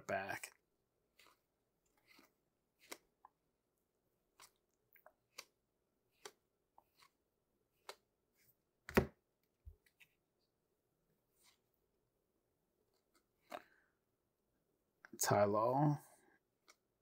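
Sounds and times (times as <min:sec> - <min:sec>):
cards snapping and sliding: 0:02.0 - 0:03.1, 0:05.3 - 0:07.2.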